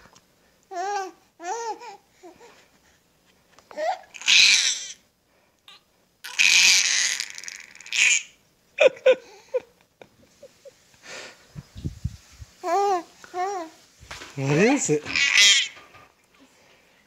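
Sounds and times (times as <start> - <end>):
baby cooing: 0.7 - 2.5, 3.7 - 5.0, 5.7 - 8.4, 12.6 - 13.8, 15.0 - 15.8
baby shrieking: 3.8 - 5.0, 6.2 - 8.4, 15.0 - 15.8.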